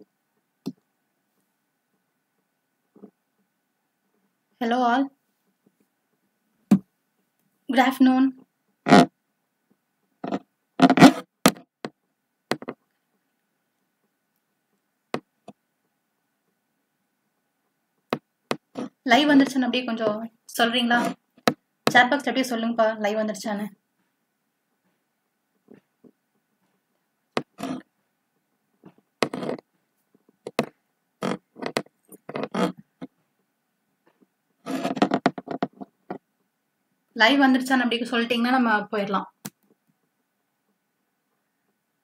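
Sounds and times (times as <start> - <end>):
sharp clicks and knocks: 10.2 - 12.9, 28.8 - 33.2, 34.0 - 36.2.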